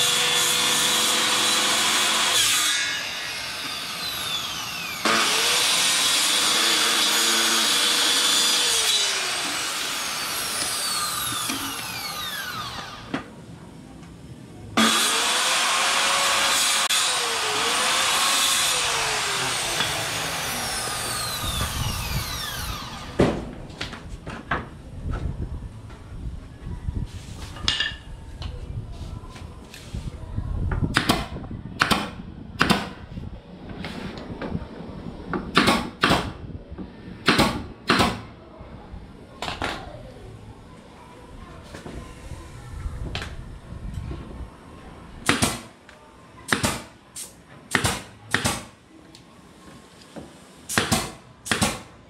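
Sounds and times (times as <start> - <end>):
circular saw cutting wood: 0.0 - 13.1, 14.8 - 23.2
nail gun firing into wood: 30.9 - 33.0, 35.5 - 36.4, 37.2 - 38.3, 45.2 - 45.7, 46.5 - 46.9, 47.7 - 48.7, 50.7 - 51.9.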